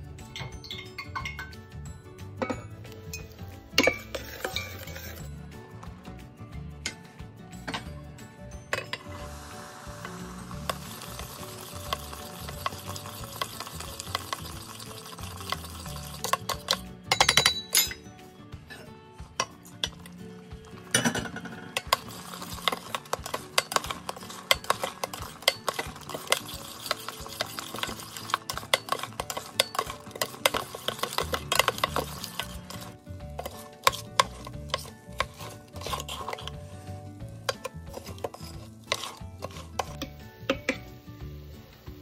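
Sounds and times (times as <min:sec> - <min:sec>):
metal spatula scraping pot: 0:03.2 - 0:05.8, 0:10.1 - 0:18.0, 0:19.4 - 0:40.8.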